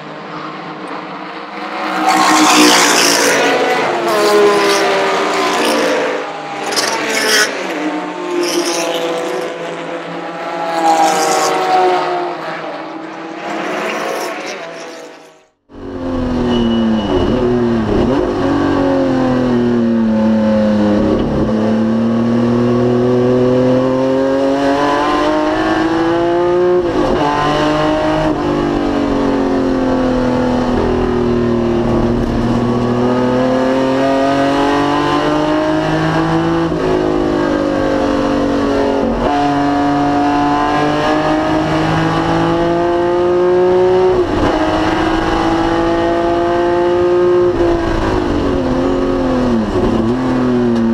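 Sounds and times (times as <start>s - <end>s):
gear changes: 1.5s - 10.1s, 10.7s - 15.5s
race car engine accelerating: 16.1s - 50.9s.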